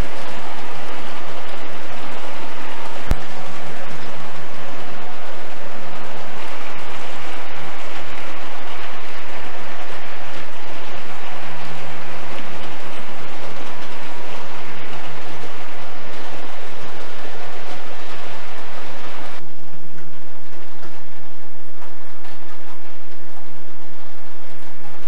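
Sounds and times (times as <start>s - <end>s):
low hum: 0.0s - 25.0s.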